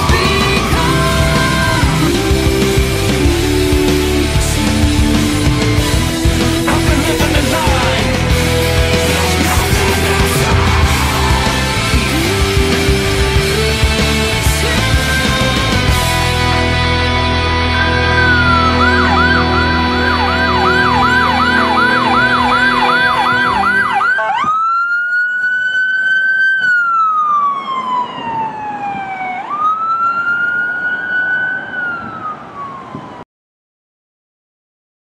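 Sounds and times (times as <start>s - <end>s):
song playing: 0.0s - 24.5s
electronic siren yelp and wail: 9.0s - 12.0s, 17.6s - 33.2s.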